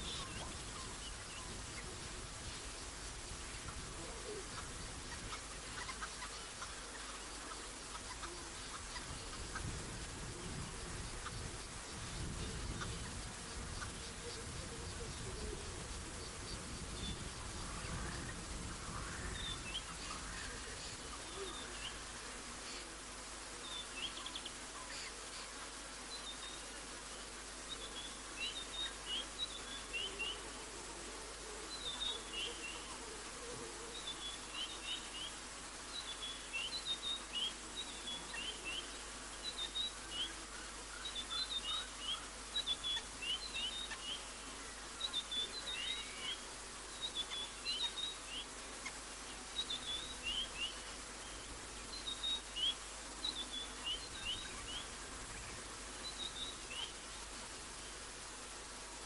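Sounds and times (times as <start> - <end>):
steady background hiss: 0.0 - 59.0.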